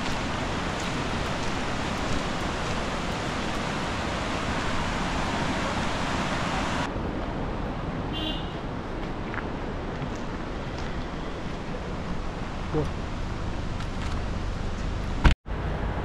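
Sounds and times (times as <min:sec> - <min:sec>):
white-water rapids rushing: 0:00.0 - 0:06.9.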